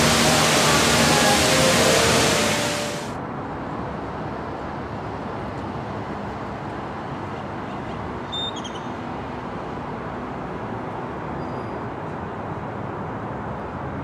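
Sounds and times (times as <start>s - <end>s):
road traffic hum: 0.0s - 3.1s.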